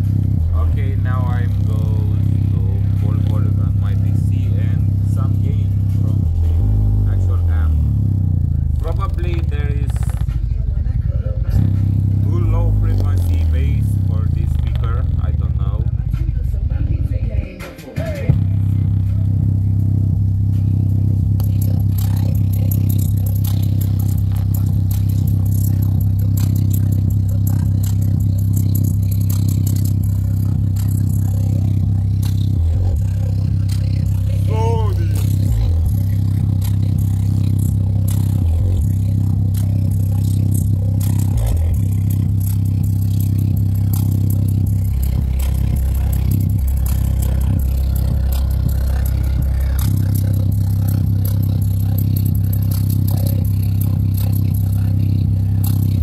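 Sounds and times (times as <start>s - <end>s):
rough clicking distortion: 0.0s - 10.9s, 11.5s - 16.5s, 18.2s - 56.0s
deep bass test tone: 0.0s - 17.2s, 18.3s - 56.0s
fingertip scraping on speaker cone: 9.1s - 10.5s.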